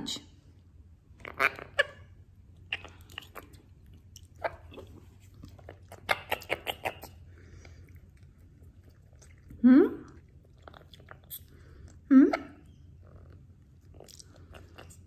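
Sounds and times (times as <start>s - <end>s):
person chewing crunchy food: 2.5s - 12.0s, 13.0s - 15.0s.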